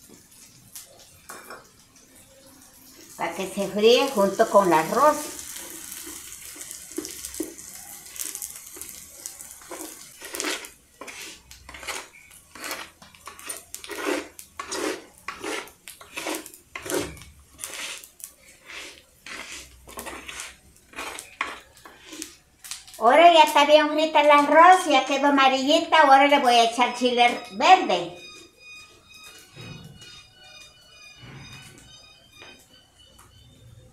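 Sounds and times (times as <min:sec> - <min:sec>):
rice frying in oil: 0:00.0 - 0:27.0
wooden spoon scraping pot: 0:09.6 - 0:22.4.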